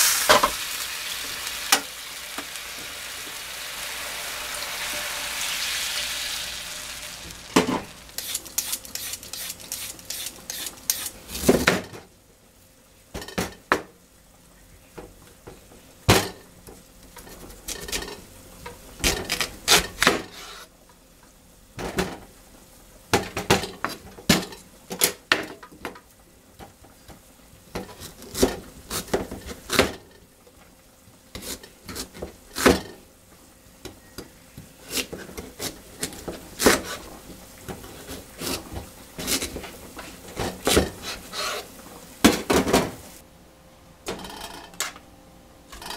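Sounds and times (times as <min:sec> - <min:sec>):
water sizzling in hot frying pan: 0:00.0 - 0:11.4.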